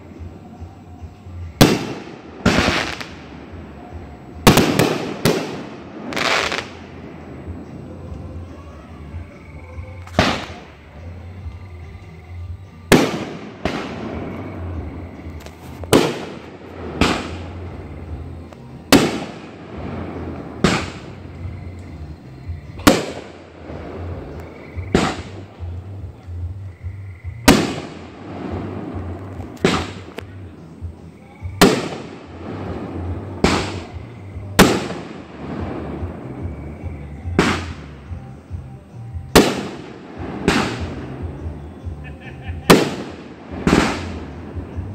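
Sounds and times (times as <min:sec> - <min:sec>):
fireworks bursting with echo: 0:00.0 - 0:08.4, 0:10.0 - 0:11.5, 0:12.8 - 0:26.6, 0:27.3 - 0:30.9, 0:31.5 - 0:38.4, 0:39.2 - 0:42.0, 0:42.6 - 0:44.9.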